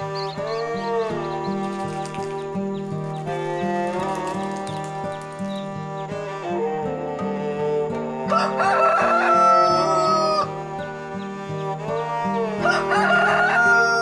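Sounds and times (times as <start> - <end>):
instrumental background music: 0.0 - 14.0
rooster crowing: 8.2 - 10.6, 11.9 - 14.0.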